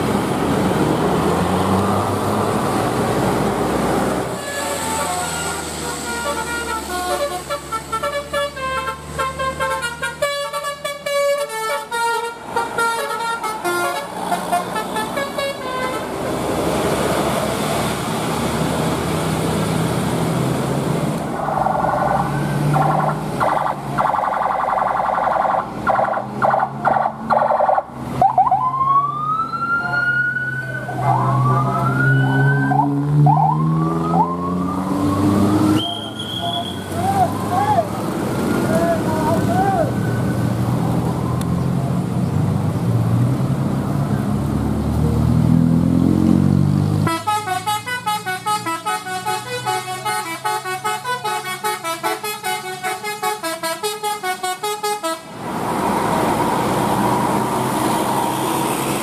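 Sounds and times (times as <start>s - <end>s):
road noise of vehicles: 0.0s - 59.0s
multi-tone air horn chords: 4.4s - 16.2s, 47.0s - 55.3s
rising siren-like whoops: 28.2s - 37.9s.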